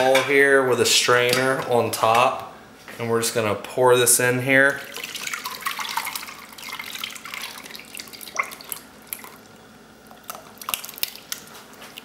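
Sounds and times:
liquid pouring and dripping: 4.7s - 12.0s.

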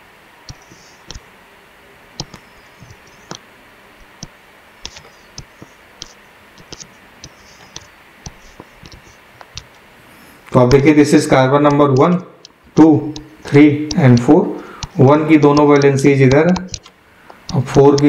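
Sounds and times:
stylus tapping on tablet screen: 0.5s - 1.2s, 2.2s - 3.4s, 4.0s - 9.8s, 10.6s - 11.0s, 11.7s - 18.0s.

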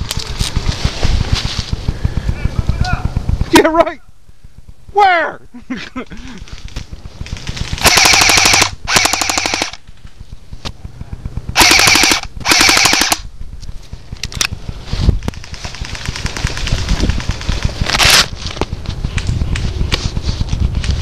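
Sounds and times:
leaves rustling: 0.0s - 3.2s, 6.2s - 7.9s, 13.3s - 21.0s
airsoft gun firing bursts: 7.0s - 9.9s, 11.2s - 13.3s, 15.3s - 18.3s.

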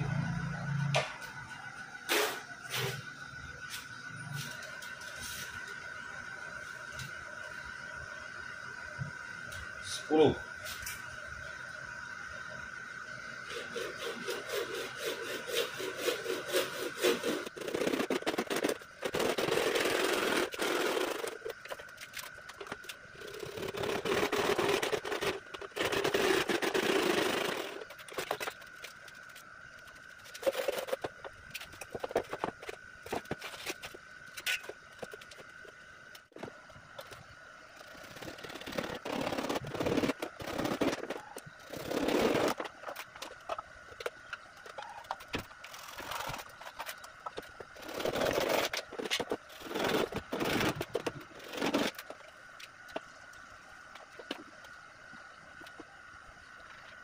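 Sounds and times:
faint high whine: 0.0s - 57.0s
hand saw cutting plastic pipe: 13.5s - 21.4s, 23.5s - 27.8s.

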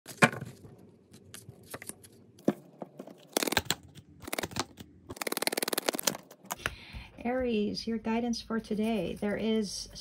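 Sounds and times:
cards riffling: 3.1s - 6.6s.

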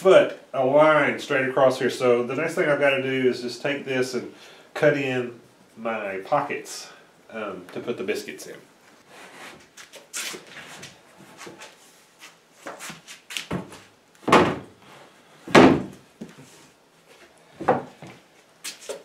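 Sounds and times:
wooden boards thudding: 13.5s - 14.7s, 15.5s - 16.0s.

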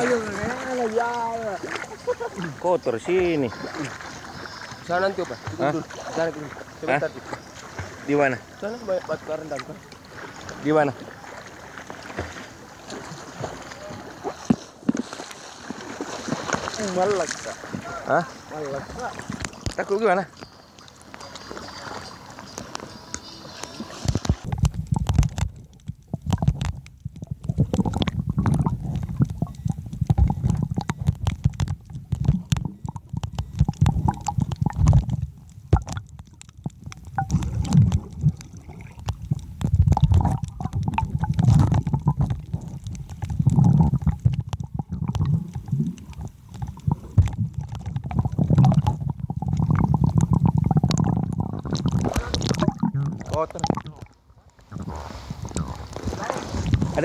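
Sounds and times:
underwater rumbling and gurgling: 24.0s - 57.0s.

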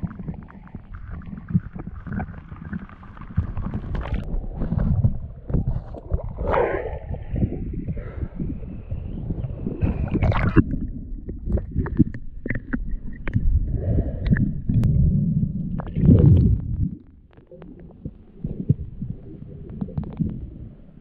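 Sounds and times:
bubbling: 0.0s - 21.0s
muffled underwater rumble: 0.0s - 21.0s
water sloshing and gurgling: 0.0s - 21.0s
underwater clicks: 9.3s - 15.0s, 15.6s - 20.5s.

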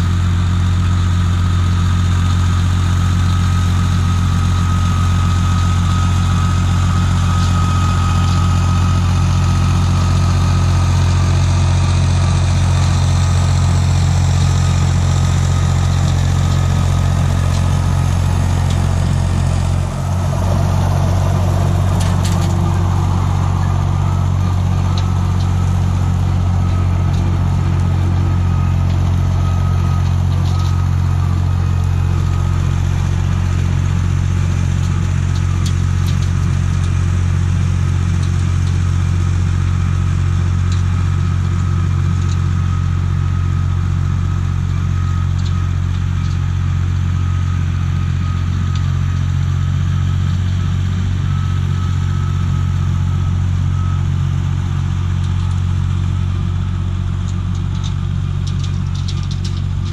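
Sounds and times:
diesel engine droning: 0.0s - 59.9s.

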